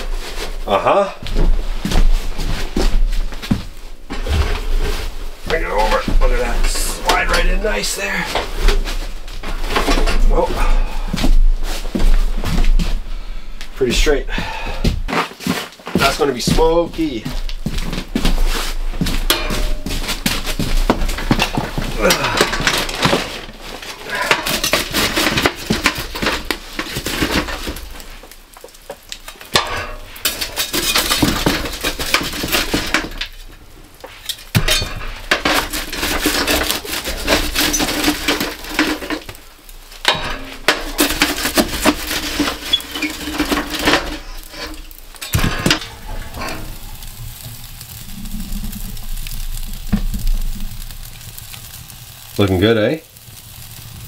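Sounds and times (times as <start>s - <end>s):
coals dropping into metal bucket: 1.3s - 12.9s, 13.7s - 54.0s
shovel scraping metal: 19.3s - 27.8s, 34.2s - 39.4s, 40.1s - 46.8s.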